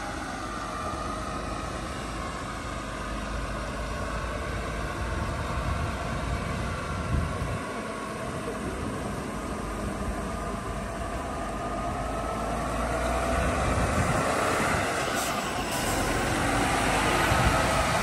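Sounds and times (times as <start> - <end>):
truck diesel engine: 0.0 - 18.0.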